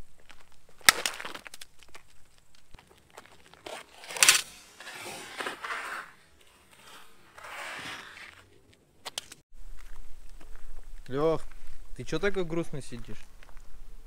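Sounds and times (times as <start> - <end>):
bat striking camera: 3.7 - 6.1.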